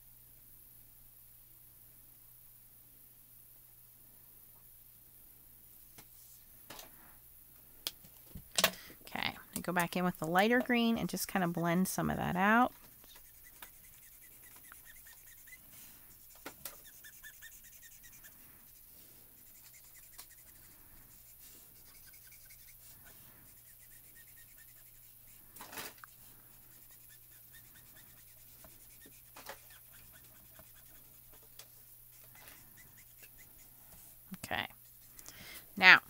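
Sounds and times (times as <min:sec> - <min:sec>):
low steady hum: 0:00.0 - 0:36.0
marker rubbing and squeaking on card: 0:12.6 - 0:33.9, 0:34.7 - 0:35.3.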